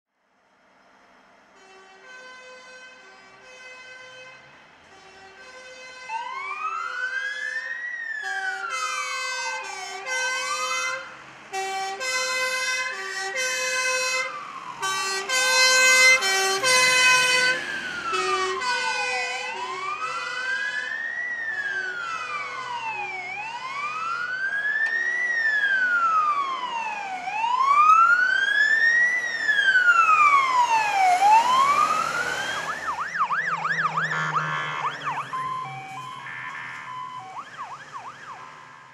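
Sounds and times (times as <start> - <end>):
wailing siren: 5.2 - 38.9
two-note hi-lo siren horn: 11.6 - 20.3, 31.2 - 38.5.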